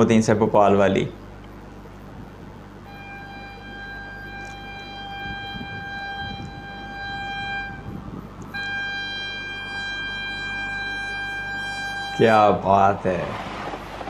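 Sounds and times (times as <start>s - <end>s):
train horn: 2.9s - 12.7s.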